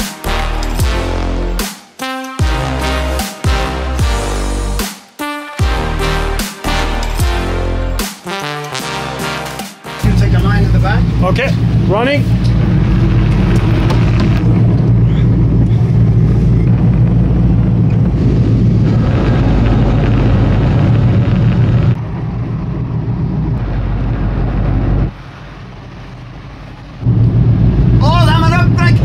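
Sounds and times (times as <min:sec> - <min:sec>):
boat engine deep hum: 0:10.0 - 0:29.0.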